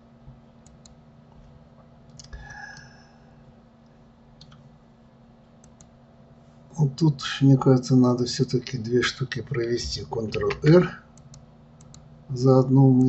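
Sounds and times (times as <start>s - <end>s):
steady low hum: 0.0s - 13.0s
computer mouse clicks: 0.6s - 1.0s, 4.4s - 4.6s, 5.6s - 5.9s, 11.2s - 12.1s.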